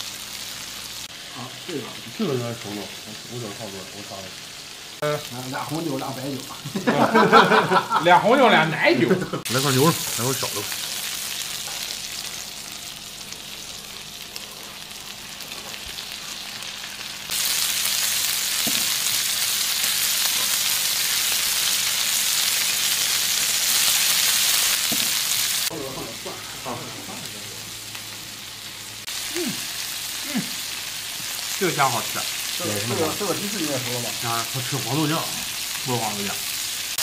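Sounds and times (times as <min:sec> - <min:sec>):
meat sizzling on a grill plate: 0:00.0 - 0:07.9, 0:09.4 - 0:37.0.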